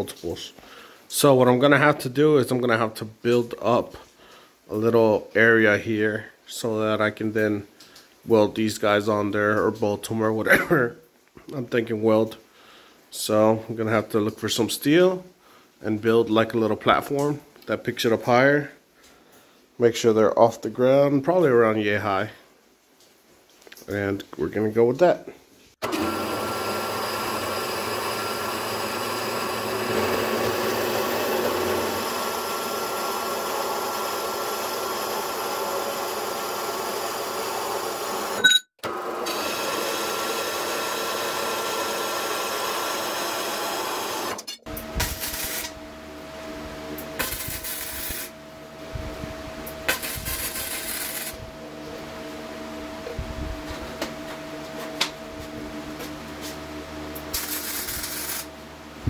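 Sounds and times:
bandsaw cutting steel: 25.8 - 38.4, 39.2 - 45.7, 47.2 - 48.3, 49.8 - 51.4, 57.3 - 58.5
steady hum: 44.7 - 59.0
welding crackle: 45.0 - 45.7, 47.2 - 48.3, 49.9 - 51.4, 57.3 - 58.5.

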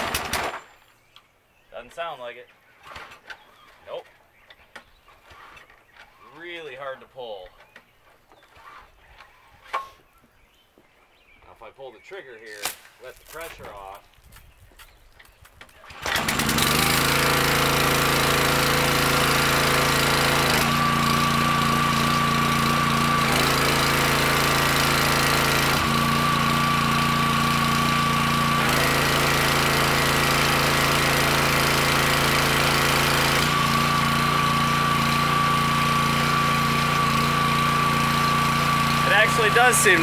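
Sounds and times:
small gas engine running: 0.0 - 0.6, 15.7 - 40.0.

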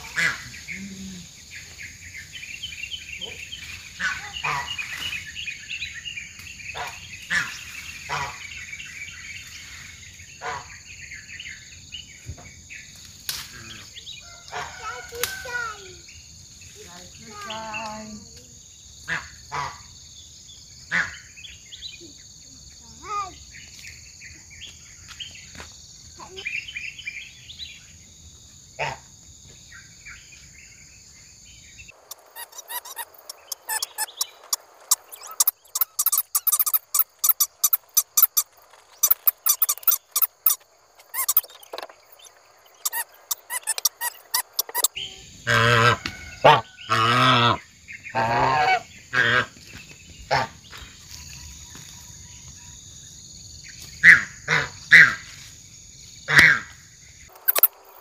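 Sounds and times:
birds chirping: 0.0 - 28.2, 29.6 - 55.2, 56.5 - 58.0
high insect drone: 0.0 - 58.0
loud pitched calls: 4.0 - 5.0, 31.9 - 49.5
sharp clicks and taps: 32.1 - 41.9.

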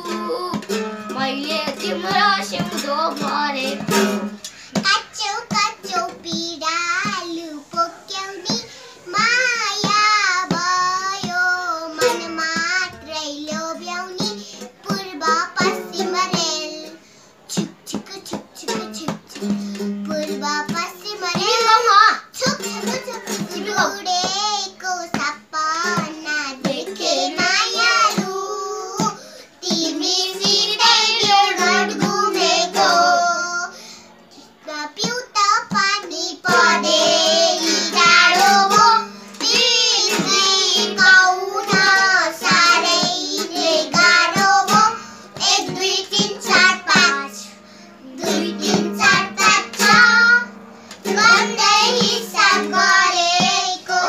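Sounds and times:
hand drum: 0.0 - 4.4, 35.0 - 47.3, 51.1 - 54.0
children singing: 0.0 - 16.9, 17.9 - 33.7, 34.8 - 54.0
toy ukulele strummed: 17.5 - 24.4.

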